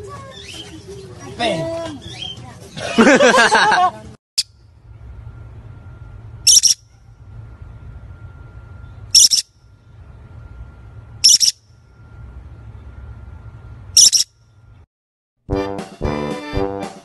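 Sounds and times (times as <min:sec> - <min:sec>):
faint low rumble: 0:04.6 - 0:14.9
parrot shrill calls: 0:06.5 - 0:06.8, 0:09.2 - 0:09.5, 0:11.2 - 0:11.6, 0:14.0 - 0:14.3.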